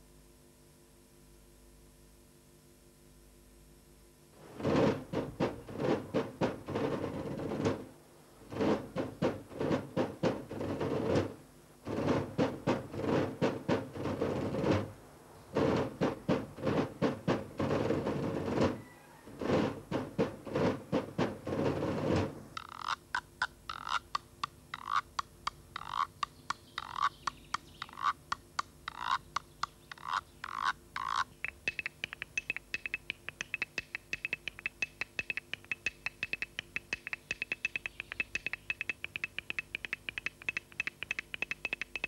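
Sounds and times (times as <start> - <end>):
stick tapping bamboo tube: 19.4 - 42.0.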